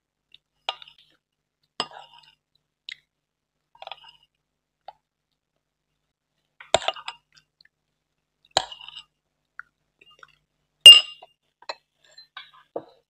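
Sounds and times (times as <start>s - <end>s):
glass dishes clinking: 10.9s - 11.2s.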